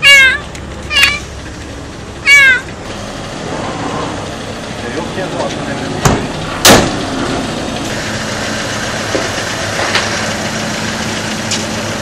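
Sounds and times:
van engine idling: 0:00.0 - 0:12.0
loud thump: 0:06.0 - 0:07.0.

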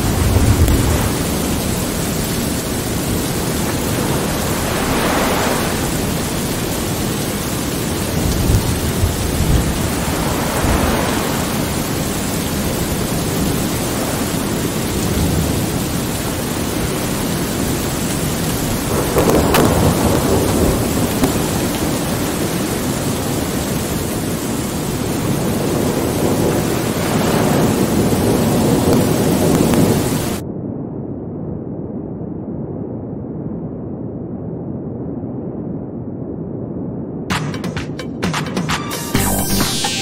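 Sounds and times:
rain hissing: 0:00.0 - 0:30.4
thunder rolling: 0:00.0 - 0:30.4.

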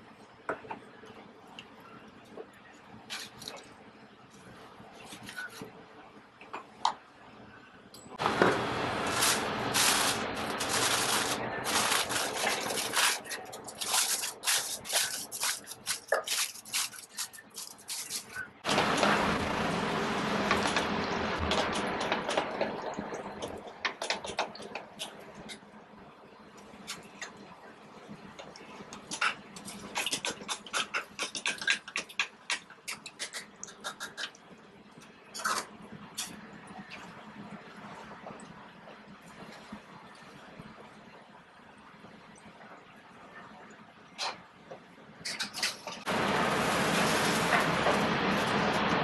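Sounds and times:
aluminium foil crinkling: 0:09.0 - 0:18.6, 0:46.6 - 0:47.7.

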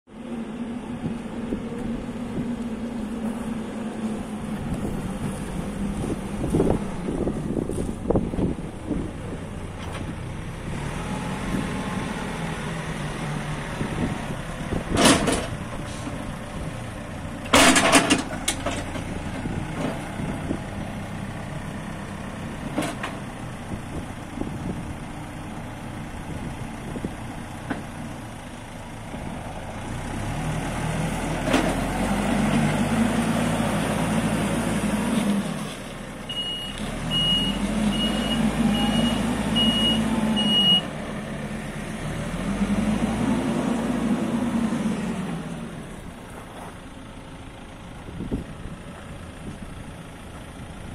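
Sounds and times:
diesel engine running and revving: 0:00.1 - 0:50.9
reversing alarm beeping: 0:36.3 - 0:40.9.

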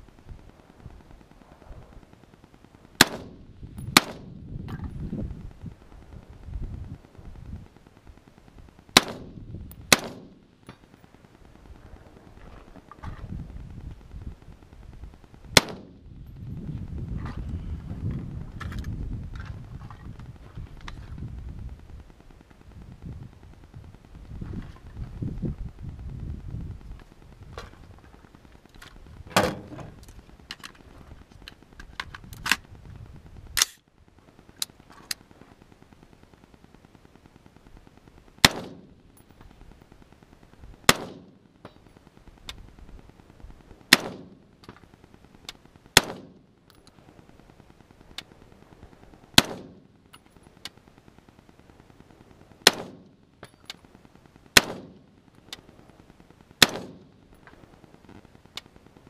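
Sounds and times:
rifle shots with echo: 0:03.0 - 0:04.4, 0:08.9 - 0:10.5, 0:15.5 - 0:16.1, 0:38.4 - 0:39.0, 0:40.8 - 0:41.5, 0:43.9 - 0:44.7, 0:46.0 - 0:46.5, 0:49.4 - 0:49.9, 0:52.6 - 0:53.2, 0:54.5 - 0:55.1, 0:56.6 - 0:57.2.

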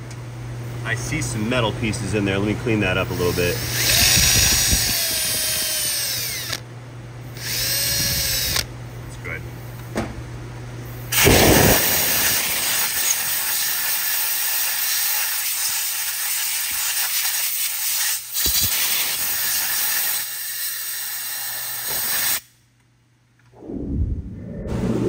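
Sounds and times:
compressed air hissing: 0:11.1 - 0:22.5.

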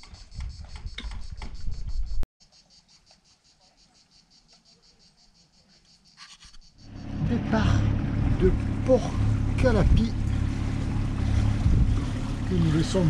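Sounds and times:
cicadas chirring: 0:00.0 - 0:13.0
low rumble: 0:06.8 - 0:13.0.

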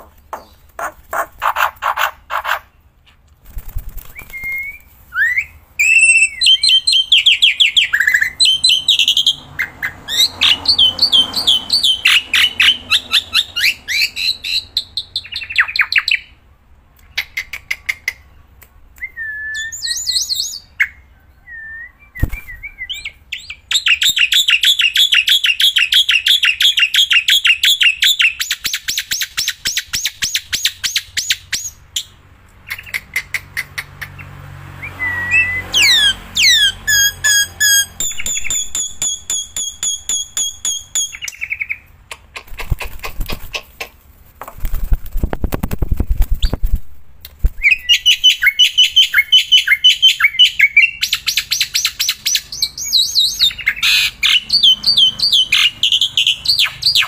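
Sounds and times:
bird singing harsh notes and whistles: 0:04.0 - 0:16.4, 0:19.0 - 0:32.1, 0:34.8 - 0:41.9, 0:47.6 - 0:57.0.

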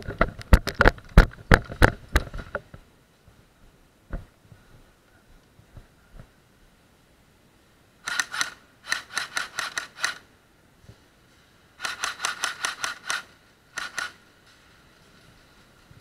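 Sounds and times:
airsoft gun shots: 0:08.0 - 0:10.2, 0:11.8 - 0:14.2.

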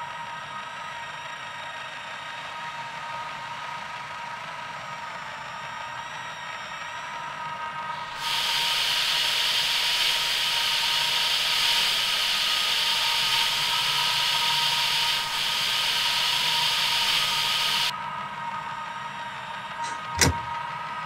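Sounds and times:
machine whine: 0:00.0 - 0:21.0
loud even hiss: 0:08.1 - 0:17.9.

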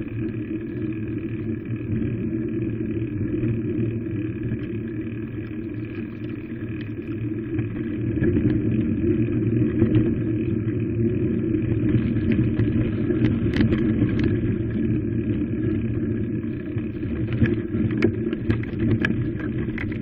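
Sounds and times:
vehicle rumbling on dirt path: 0:04.4 - 0:20.0.

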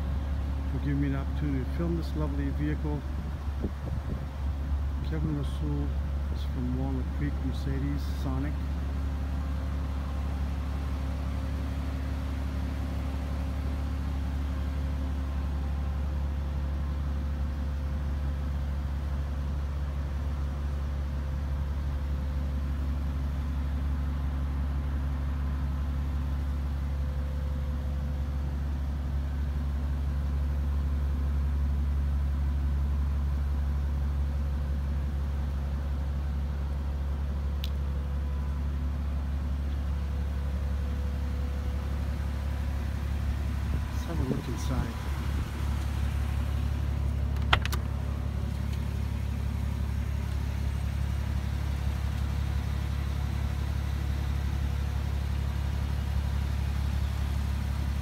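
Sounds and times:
car engine idling: 0:00.0 - 0:58.0
small click: 0:37.6 - 0:37.8, 0:47.3 - 0:47.9.

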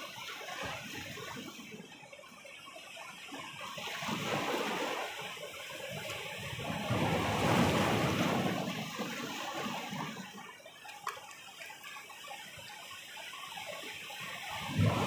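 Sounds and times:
waves breaking over rocks: 0:03.3 - 0:12.8, 0:14.3 - 0:15.0.

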